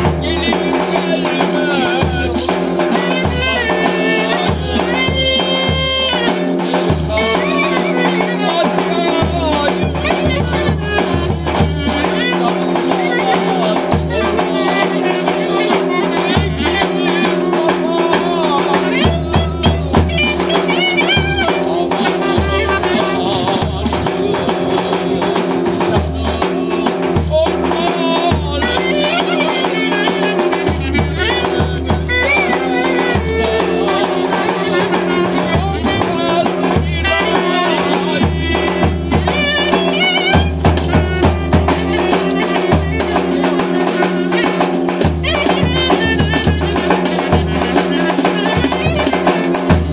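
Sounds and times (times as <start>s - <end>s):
jingling tambourine: 0.0s - 49.9s
man singing: 0.0s - 49.9s
clarinet wavering melody: 28.5s - 49.6s.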